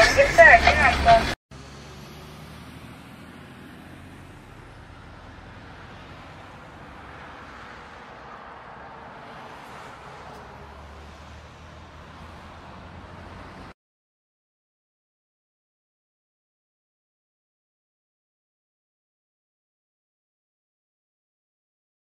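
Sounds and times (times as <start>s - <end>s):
car engine hum: 0.0s - 13.8s
road noise: 0.0s - 13.8s.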